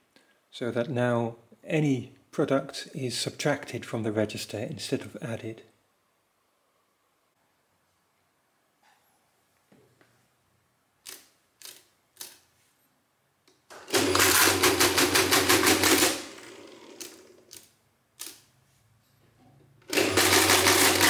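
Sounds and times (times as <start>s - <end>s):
mechanical calculator clattering: 13.8s - 17.3s, 19.9s - 21.0s.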